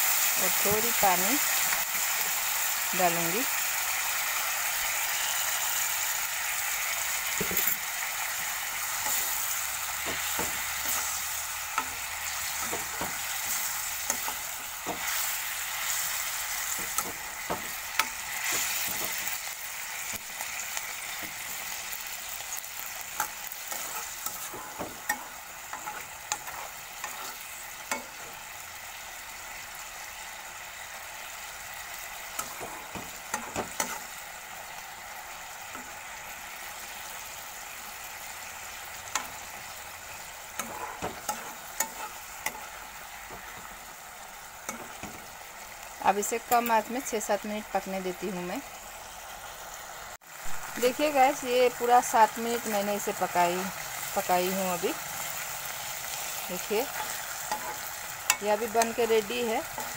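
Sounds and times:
curry sizzling in a wok: 0:00.0 - 0:59.9
steel spoon scraping a pan: 0:07.2 - 0:19.4, 0:20.0 - 0:28.4, 0:32.3 - 0:34.2, 0:38.6 - 0:43.8, 0:44.6 - 0:45.3, 0:55.2 - 0:59.9.

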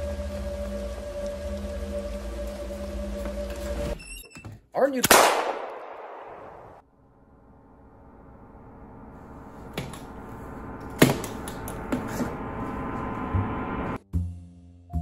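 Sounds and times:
multi-pitched drone: 0:00.0 - 0:04.0, 0:06.9 - 0:14.0.

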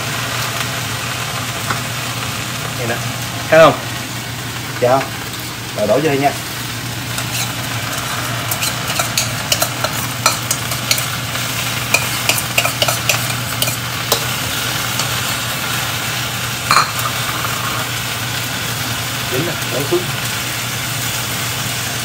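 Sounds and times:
vegetables sizzling in wok: 0:00.0 - 0:22.0.

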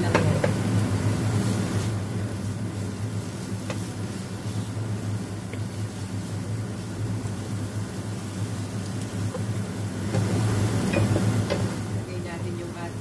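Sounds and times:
constant low hum: 0:00.0 - 0:13.0
vegetables sizzling in frying pan: 0:00.0 - 0:13.0
spatula tapping pan: 0:03.6 - 0:03.9.

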